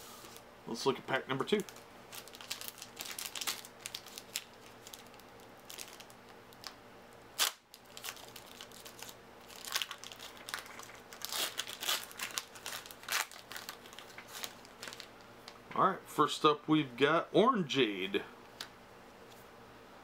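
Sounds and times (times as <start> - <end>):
wrapper tearing and crinkling: 1.5 - 6.8, 7.4 - 15.6.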